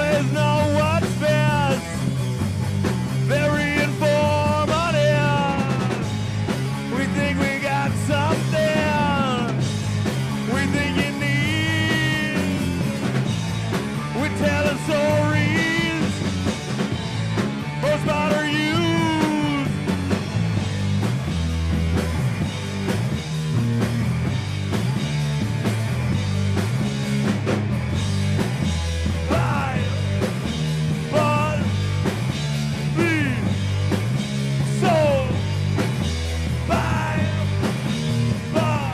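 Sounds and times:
man singing: 0:00.0 - 0:02.0, 0:03.3 - 0:06.2, 0:06.9 - 0:09.6, 0:10.4 - 0:12.9, 0:14.1 - 0:16.3, 0:17.8 - 0:19.8, 0:29.2 - 0:30.1, 0:31.1 - 0:31.8, 0:32.8 - 0:33.6, 0:34.6 - 0:35.4, 0:36.6 - 0:37.8, 0:38.4 - 0:38.9
rock band playing live: 0:00.0 - 0:38.9.

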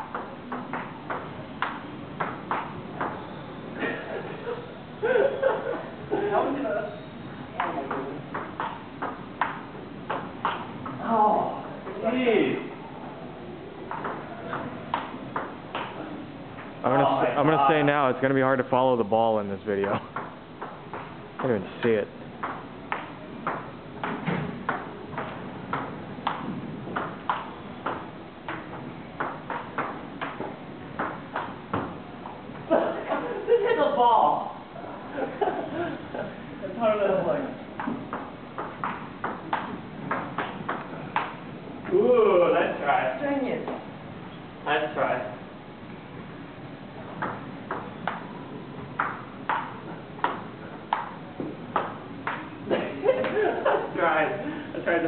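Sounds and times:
ping pong ball clicking: 0:00.0 - 0:03.2, 0:13.9 - 0:16.0, 0:19.8 - 0:21.5, 0:22.4 - 0:31.8, 0:37.8 - 0:41.4, 0:47.2 - 0:48.3, 0:49.0 - 0:52.5.

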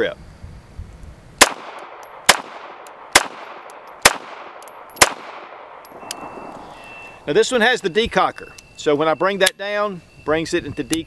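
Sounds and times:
pistol shots: 0:01.4 - 0:06.7.

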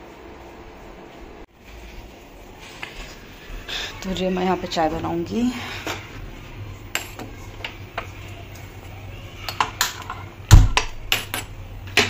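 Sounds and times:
kitchen things clicking and clattering: 0:02.7 - 0:12.0.

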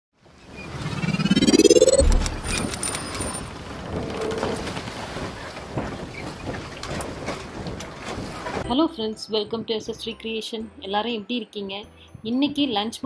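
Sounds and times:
rising whoosh: 0:00.7 - 0:03.0
low boom: 0:01.1 - 0:02.8.

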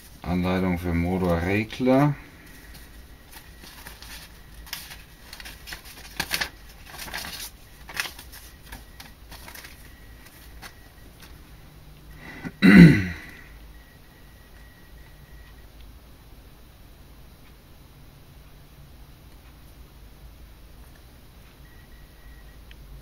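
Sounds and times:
paper and plastic rustling: 0:02.4 - 0:11.4.

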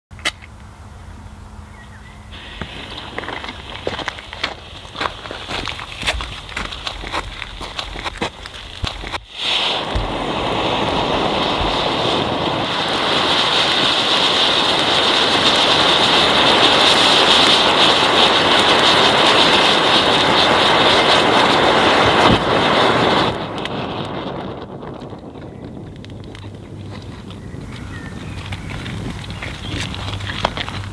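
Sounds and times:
fountain firework hissing: 0:02.3 - 0:24.8
sharp crack: 0:02.4 - 0:25.2.

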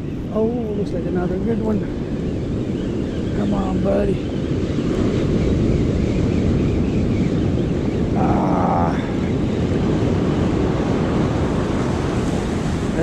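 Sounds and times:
wind buffeting microphone: 0:00.0 - 0:13.0
surf breaking on beach: 0:08.2 - 0:13.0.

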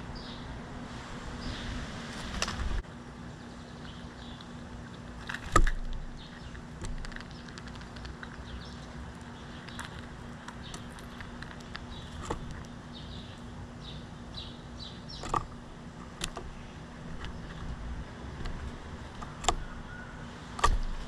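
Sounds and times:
steady low hum: 0:00.0 - 0:21.0
faint bird chirps: 0:19.2 - 0:20.3.

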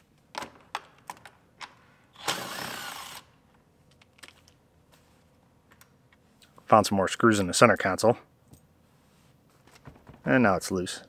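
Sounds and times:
cordless drill running: 0:02.2 - 0:03.3.

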